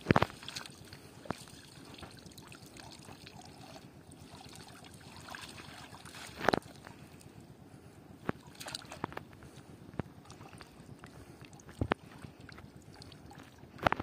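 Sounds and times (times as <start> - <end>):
low water wash: 0.0 - 14.0
water splashing and dripping: 0.3 - 6.7, 8.4 - 9.1
sharp splashes: 8.4 - 9.0.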